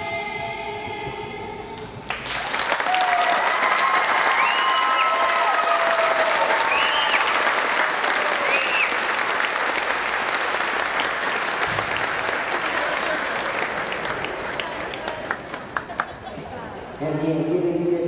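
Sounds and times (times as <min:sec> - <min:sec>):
audience applause: 0:02.1 - 0:16.4.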